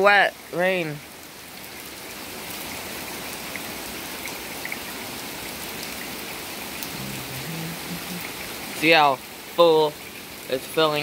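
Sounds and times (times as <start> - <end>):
heavy rain on wooden deck: 0.0 - 11.0
drips ticking: 6.8 - 9.2.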